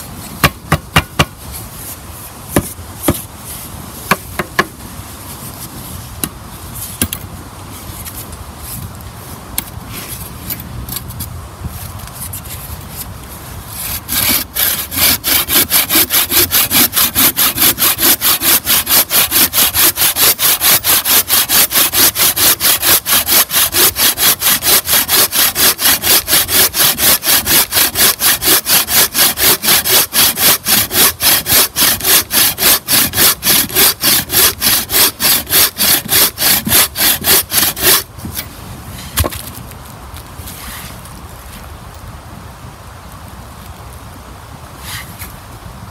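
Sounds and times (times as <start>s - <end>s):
saw cutting through log: 13.7s - 38.1s.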